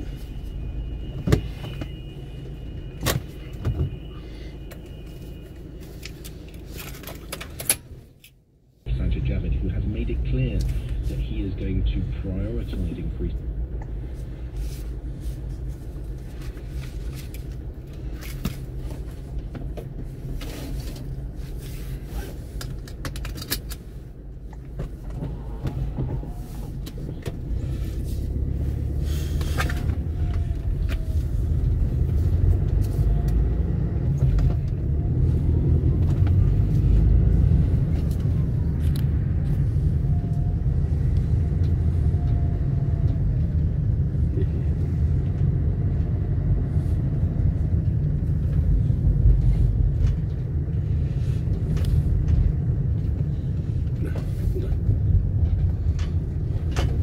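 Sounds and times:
road traffic rumble: 0:00.0 - 0:57.0.

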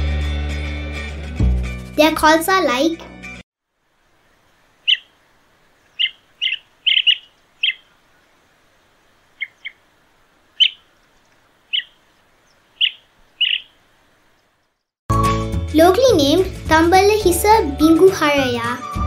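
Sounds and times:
bird short high calls: 0:04.8 - 0:05.2, 0:05.8 - 0:08.0, 0:09.4 - 0:09.8, 0:10.6 - 0:11.0, 0:11.7 - 0:13.8.

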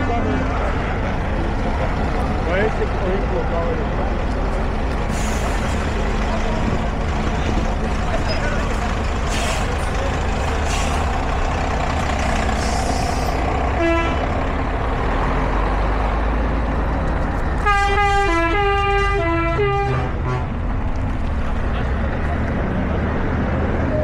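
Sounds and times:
diesel truck engines driving by: 0:00.0 - 0:24.0
musical horn playing a tune: 0:13.8 - 0:14.2, 0:17.6 - 0:20.5.

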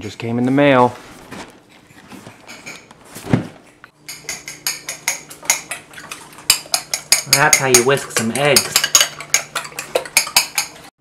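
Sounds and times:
eggs whisked in ceramic bowl: 0:04.0 - 0:10.9.

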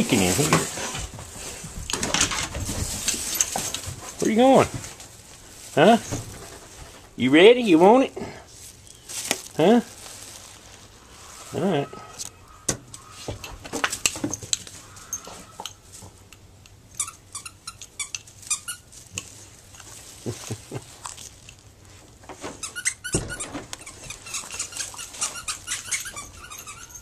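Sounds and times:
rubber dog toy squeaking: 0:16.9 - 0:18.9, 0:22.5 - 0:27.0.

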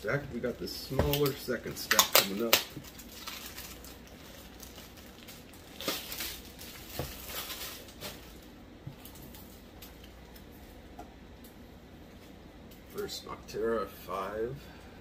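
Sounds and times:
plastic sleeves rustling: 0:00.0 - 0:10.6.

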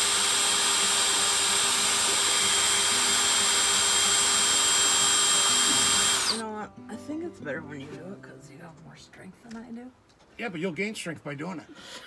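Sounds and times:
cordless drill motor whine: 0:00.0 - 0:06.4.

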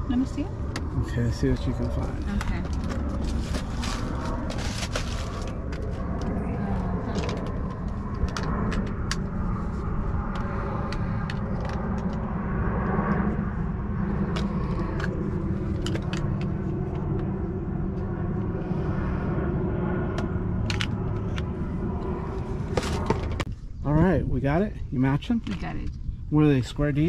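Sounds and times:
steady low rumble: 0:00.0 - 0:27.0
plastic bag rustling: 0:02.8 - 0:05.5.

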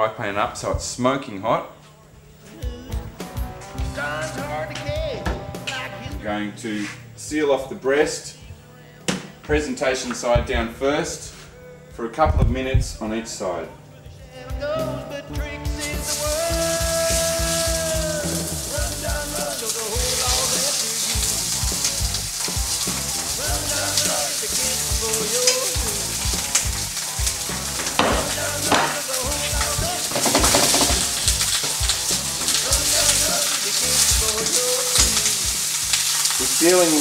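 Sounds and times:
meat sizzling in a frying pan: 0:15.8 - 0:37.0.

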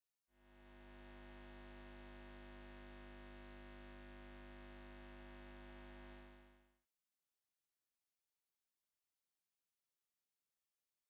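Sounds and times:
faint electrical hum: 0:00.4 - 0:06.7.

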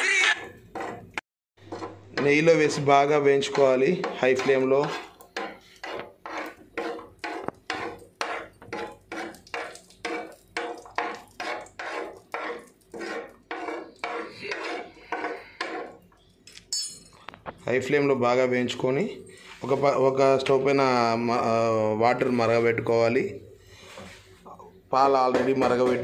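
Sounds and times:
utensil scraping frying pan: 0:00.0 - 0:16.2
nuts frying in oil: 0:01.7 - 0:16.0.

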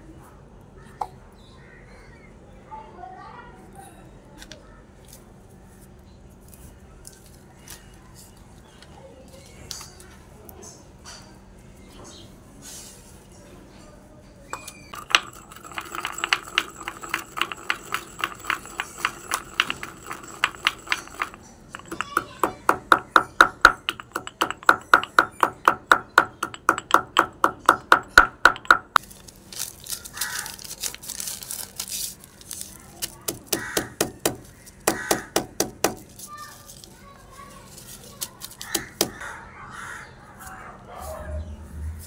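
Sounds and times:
stone pestle pounding in mortar: 0:14.6 - 0:29.0, 0:33.0 - 0:36.2, 0:38.4 - 0:39.2.

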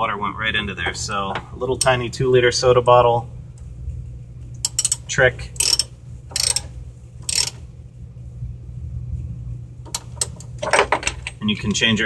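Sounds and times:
steady low hum: 0:00.0 - 0:12.0
ratchet wrench clicking: 0:04.6 - 0:07.6, 0:09.9 - 0:10.5.

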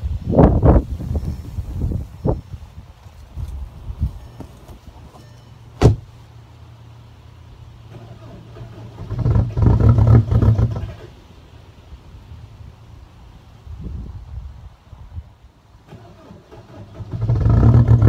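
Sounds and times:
diesel engine starting and idling: 0:06.8 - 0:11.3, 0:15.7 - 0:18.0.

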